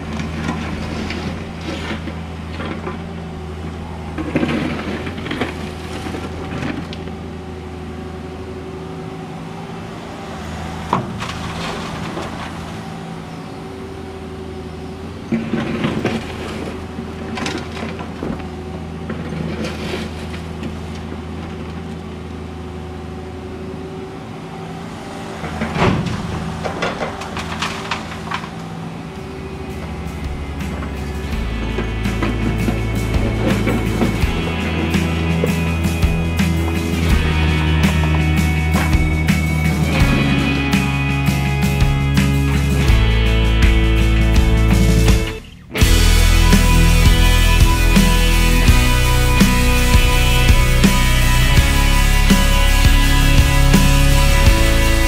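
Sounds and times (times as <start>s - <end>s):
excavator diesel engine running: 0.0s - 55.0s
asphalt clattering into truck body: 4.1s - 7.1s, 10.6s - 13.2s, 15.3s - 21.9s, 25.4s - 29.2s.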